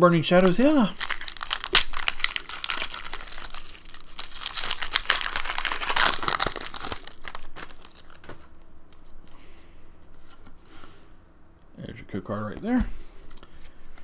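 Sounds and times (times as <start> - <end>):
foil wrapper crinkling and tearing: 0.4 - 8.4.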